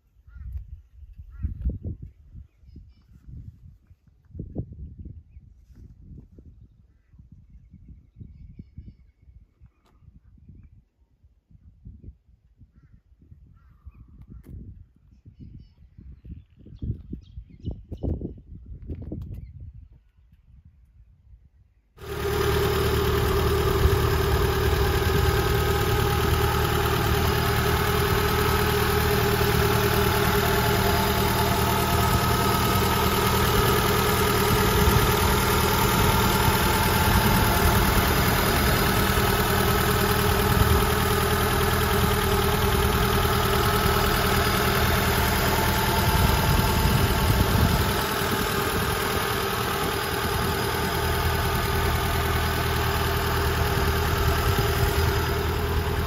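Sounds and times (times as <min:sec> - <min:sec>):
car engine idling: 0:22.0 - 0:56.0.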